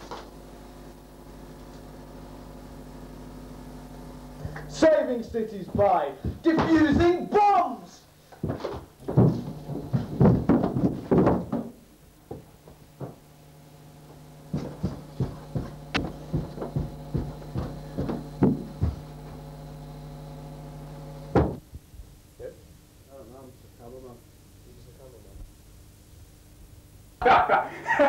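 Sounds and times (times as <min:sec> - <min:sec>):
low hum: 0:00.2 - 0:06.5, 0:12.9 - 0:21.4
heavy thumps: 0:04.3 - 0:07.3, 0:08.4 - 0:13.3, 0:14.4 - 0:19.6, 0:21.3 - 0:21.7
footsteps on carpeted stairs: 0:04.4 - 0:07.3, 0:08.3 - 0:13.3, 0:14.1 - 0:19.6.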